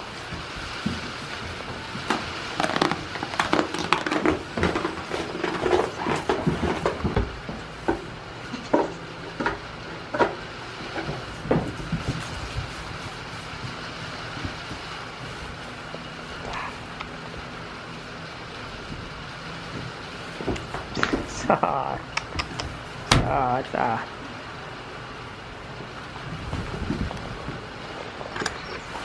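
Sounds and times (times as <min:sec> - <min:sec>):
goat pawing at plastic bowl: 0:00.3 - 0:16.0.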